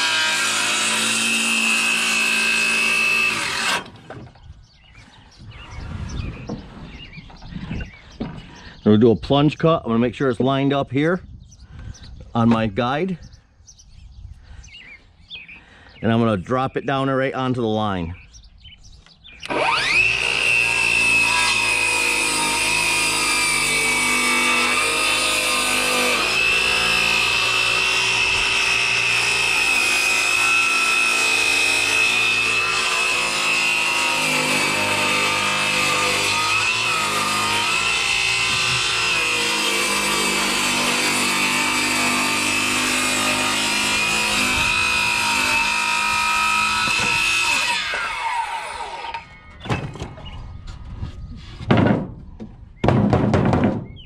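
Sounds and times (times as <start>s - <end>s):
circular saw cutting wood: 0.0s - 4.2s, 19.4s - 50.2s.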